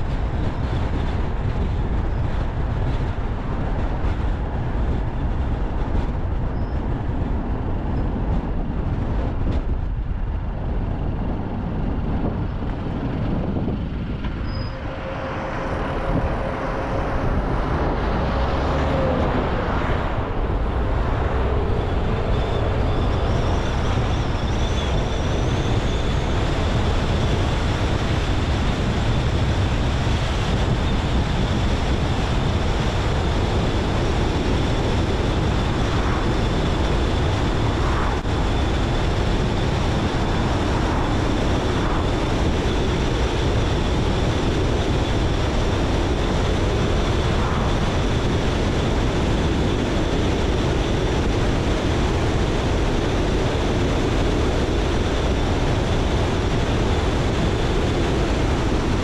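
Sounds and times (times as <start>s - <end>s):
tyre and road rumble: 0.0s - 59.0s
car engine: 12.3s - 30.3s
faint high whine: 13.6s - 29.2s.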